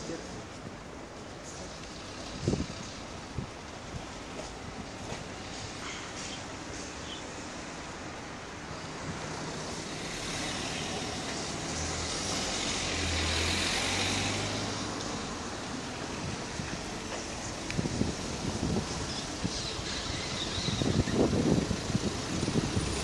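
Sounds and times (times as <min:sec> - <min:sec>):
street traffic noise: 0:00.0 - 0:23.0
motor vehicle passing: 0:09.4 - 0:17.3.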